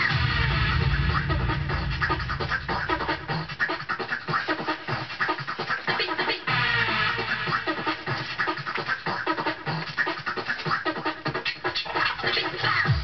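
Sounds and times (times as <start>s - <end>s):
heavy kick drum: 0.0s - 3.6s
electronic dance track: 0.0s - 13.0s
vinyl scratching: 0.0s - 13.0s.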